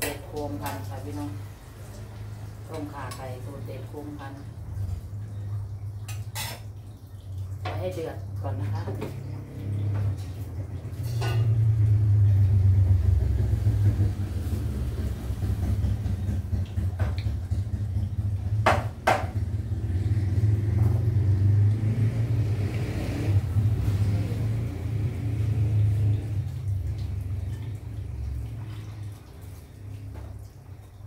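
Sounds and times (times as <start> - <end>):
stove low rumble: 0.0 - 31.0.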